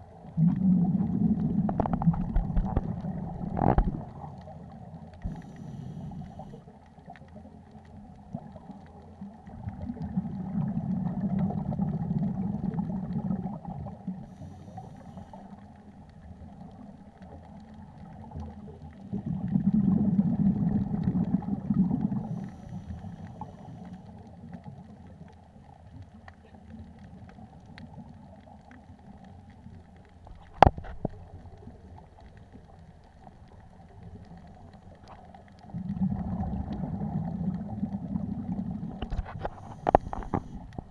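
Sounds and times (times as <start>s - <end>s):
scuba exhalation bubbles: 0.0s - 6.6s, 9.4s - 14.4s, 17.8s - 23.6s, 33.7s - 40.9s
muffled underwater hum: 0.0s - 40.9s.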